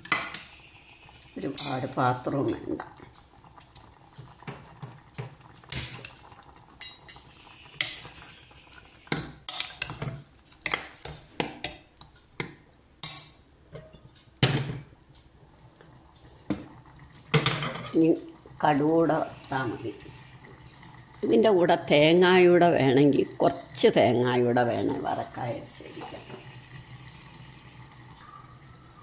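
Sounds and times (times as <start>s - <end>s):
pots clanking on stove: 16.4s - 18.1s.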